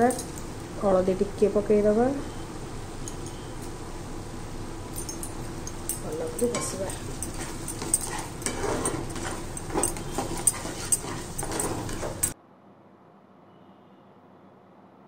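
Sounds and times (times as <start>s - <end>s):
paste frying in oil: 0.0s - 12.4s
metal spatula scraping a pan: 6.2s - 12.4s.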